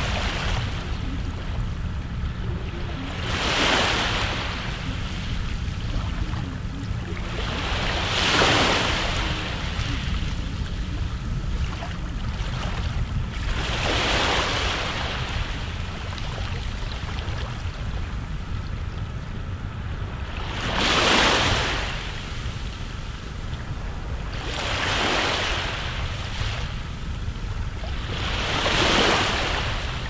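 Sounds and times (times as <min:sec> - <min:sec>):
low rumble of wind: 0:00.0 - 0:30.0
sea waves surging and washing: 0:00.0 - 0:30.0.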